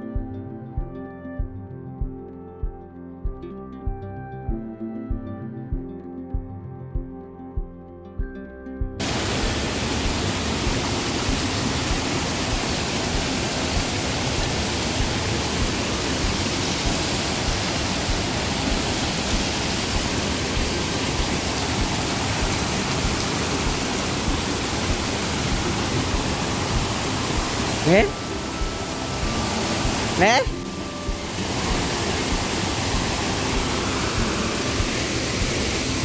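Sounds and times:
background music: 0.0 - 36.0
waterfall rushing over rocks: 9.0 - 36.0.

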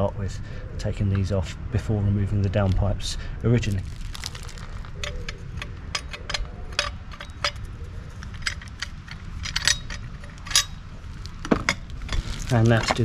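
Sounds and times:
steady low rumble: 0.0 - 13.0
metallic clicks and clinks: 8.2 - 13.0.

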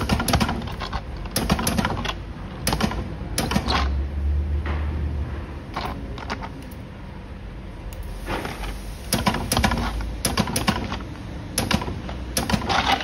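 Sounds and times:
spot welder clicks and snaps: 9.1 - 13.0.

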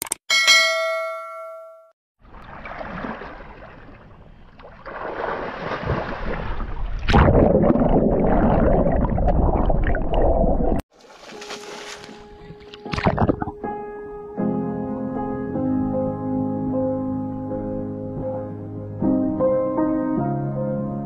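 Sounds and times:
water splashing and churning: 2.2 - 13.6
muffled underwater bubbles rushing: 6.0 - 10.8.

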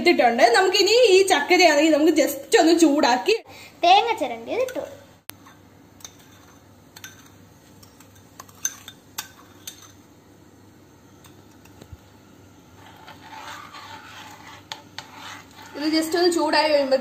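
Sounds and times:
metal spoon clinking on steel bowl: 6.0 - 10.0
spoon stirring syrup in pan: 11.2 - 17.0.

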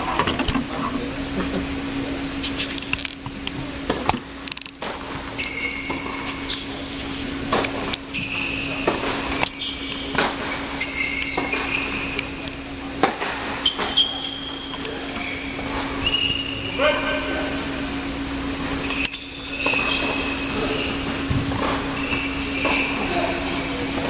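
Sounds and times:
steady low hum: 0.0 - 24.0
shoes squeaking on court: 4.8 - 16.8, 18.7 - 24.0
tennis balls struck and bouncing: 8.8 - 11.8, 13.0 - 14.0.

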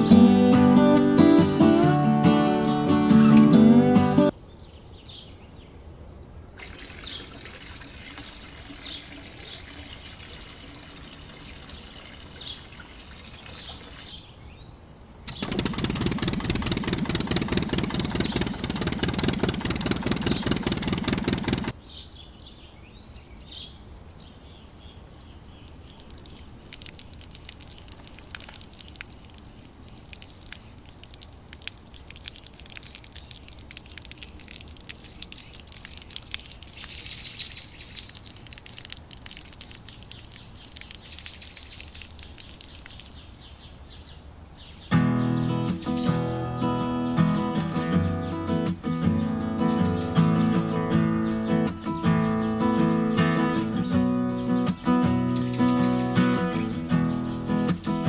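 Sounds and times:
cement slurry trickling: 6.6 - 14.3, 15.3 - 21.8, 25.6 - 43.2
birds chirping: 6.6 - 31.2, 32.1 - 58.0
small motor rattling: 15.3 - 21.7.

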